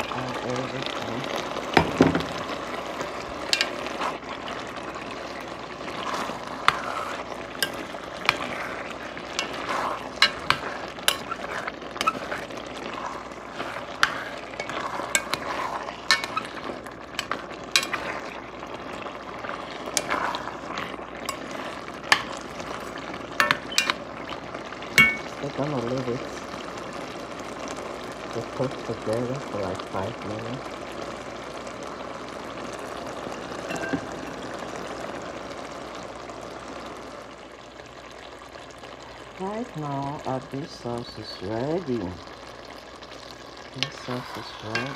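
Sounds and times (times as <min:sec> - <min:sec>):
sauce sizzling in a pot: 0:00.0 - 0:44.9
metal spoon scraping a pot: 0:06.0 - 0:18.3, 0:19.9 - 0:22.8, 0:23.4 - 0:24.0.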